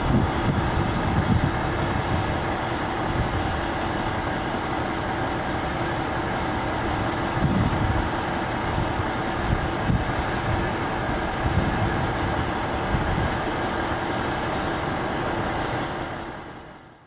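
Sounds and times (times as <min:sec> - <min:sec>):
motor running with low rumble: 0:00.0 - 0:13.6.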